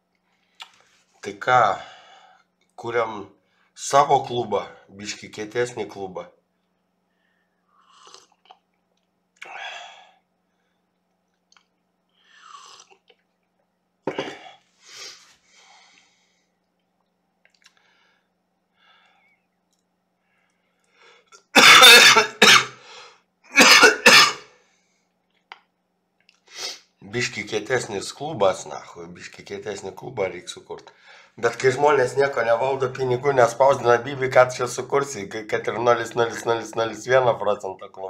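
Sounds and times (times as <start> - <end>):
man coughing: 14.1 - 14.6, 21.5 - 22.8, 23.5 - 24.5.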